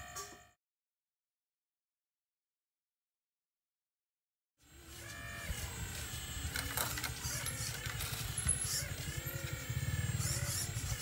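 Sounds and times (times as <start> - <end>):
toy excavator buzzing: 4.6 - 11.0.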